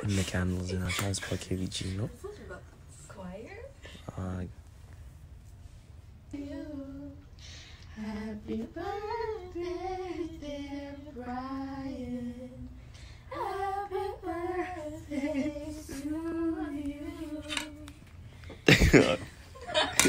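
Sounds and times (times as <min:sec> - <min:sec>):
woman singing unaccompanied: 0:06.3 - 0:07.3, 0:07.9 - 0:18.0.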